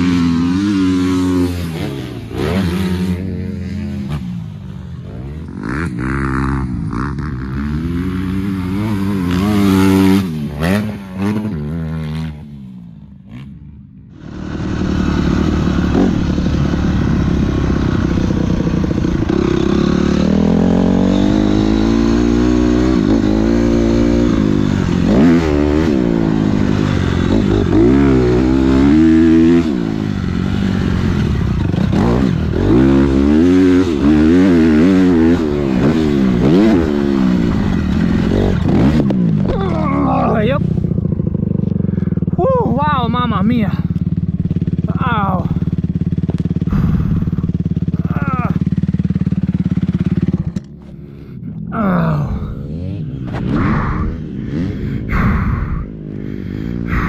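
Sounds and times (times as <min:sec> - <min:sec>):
dirt bike engine revving: 0:00.0 - 0:57.0
rushing noise: 0:53.4 - 0:57.0.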